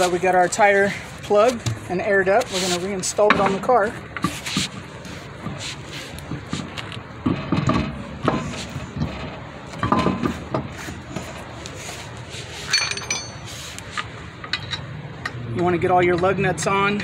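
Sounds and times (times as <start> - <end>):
wheel rim knocking and scraping: 0.0 - 16.4
ringing metal clink: 12.7 - 13.5.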